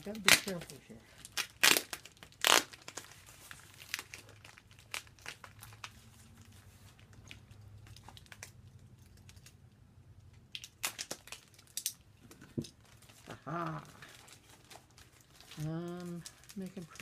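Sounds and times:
tape and cardboard crinkling: 0:00.0 - 0:17.0.

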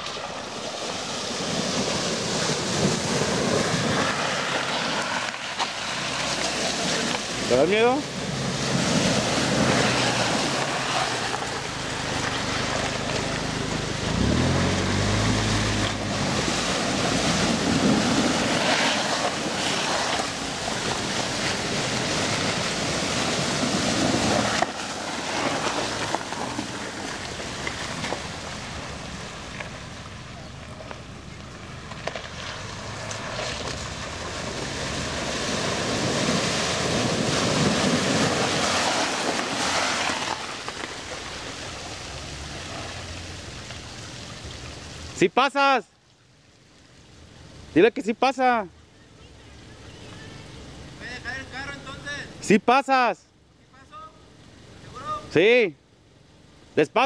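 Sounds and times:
tyres splashing through water: 0:00.0 - 0:51.2
car engines running: 0:00.0 - 0:57.0.

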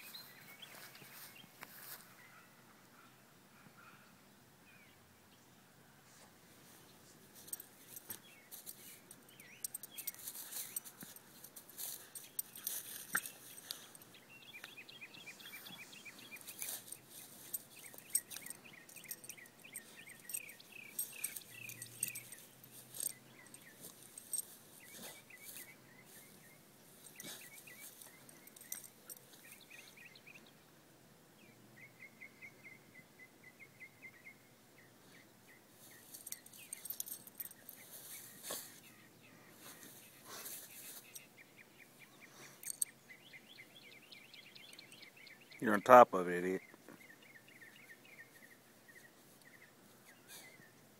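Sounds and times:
rustling and scuffling in grass: 0:00.0 - 0:02.2, 0:10.0 - 0:14.0, 0:15.4 - 0:19.2, 0:35.8 - 0:41.2.

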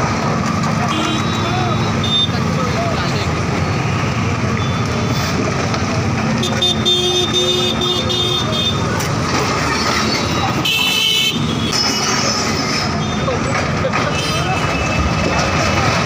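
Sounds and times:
street traffic engines: 0:00.0 - 0:16.0
vehicle horn honking: 0:00.9 - 0:02.3.

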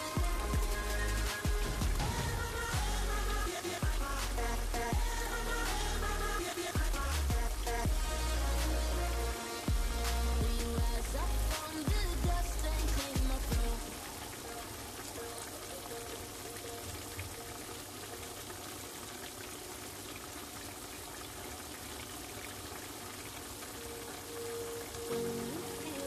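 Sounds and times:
food simmering in a skillet: 0:13.6 - 0:26.0.

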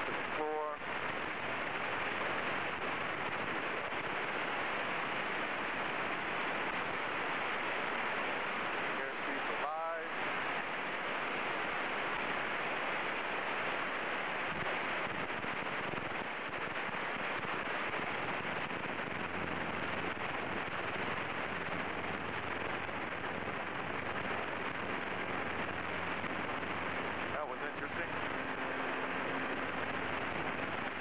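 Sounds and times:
airplane engine and propeller roaring: 0:00.0 - 0:31.0
low hum: 0:00.0 - 0:31.0.

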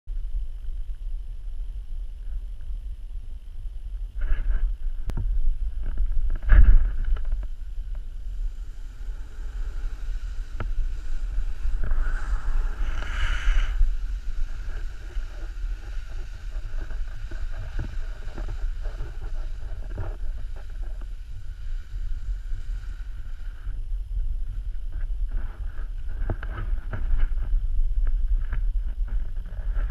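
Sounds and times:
wind rushing over microphone: 0:00.1 - 0:29.9
snowboard hissing on snow: 0:06.4 - 0:27.6
snow spray rushing: 0:07.5 - 0:23.7.

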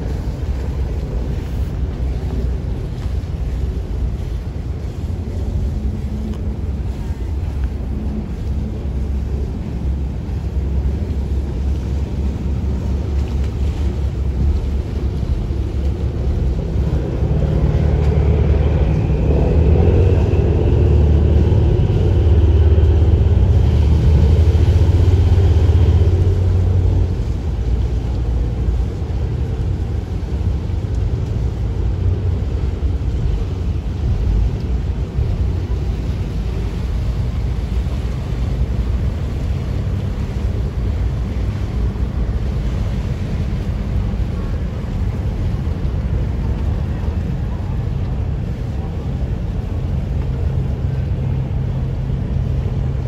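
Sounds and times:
ferry engine rumble: 0:00.0 - 0:53.0
faint rising whine: 0:15.0 - 0:28.8.

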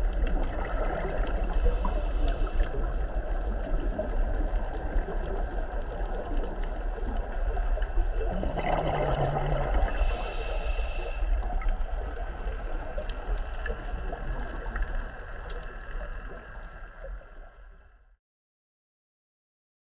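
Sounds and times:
underwater low rumble: 0:00.0 - 0:18.2
water rush: 0:03.4 - 0:16.8.

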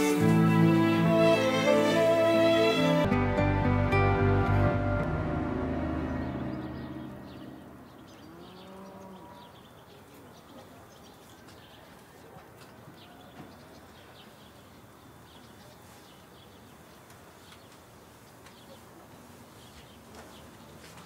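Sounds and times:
steady low hiss: 0:00.0 - 0:10.0
faint birds chirping: 0:04.7 - 0:21.0.

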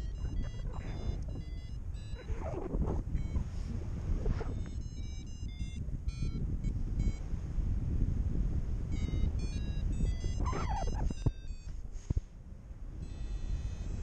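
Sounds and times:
variometer beeping in short high tones: 0:00.0 - 0:07.2, 0:08.9 - 0:11.8, 0:13.0 - 0:14.0
wind rushing on microphone: 0:00.0 - 0:14.0.

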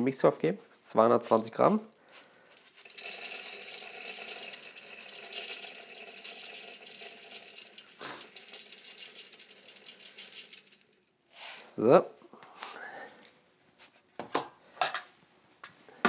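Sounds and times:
grains pattering onto metal bowl: 0:02.1 - 0:11.1.

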